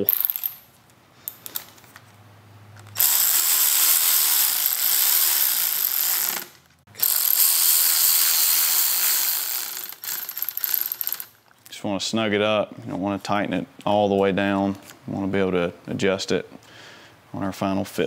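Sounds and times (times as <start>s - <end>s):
faint clicks of parts handled: 0.8s - 2.2s
cordless electric ratchet running: 3.0s - 11.4s.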